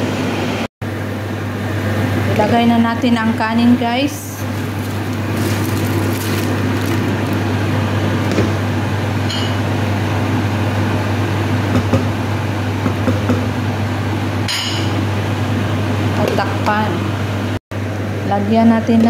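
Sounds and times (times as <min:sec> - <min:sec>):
low mechanical hum: 0:00.0 - 0:19.0
broth boiling: 0:04.1 - 0:08.2
rice poured and stirred: 0:04.4 - 0:07.6.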